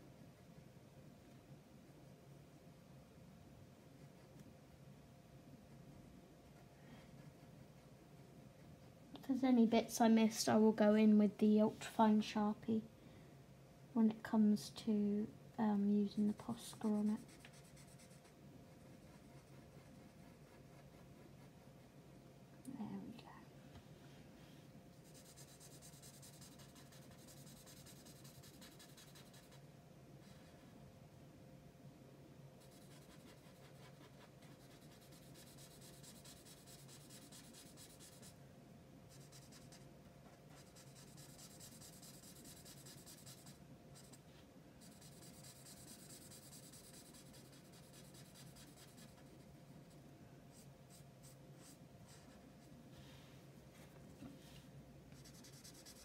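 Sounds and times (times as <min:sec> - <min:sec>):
marker scratching on paper: 0:25.0 - 0:29.6, 0:32.7 - 0:38.3, 0:39.1 - 0:39.8, 0:40.5 - 0:44.2, 0:44.8 - 0:49.4, 0:55.2 - 0:56.0.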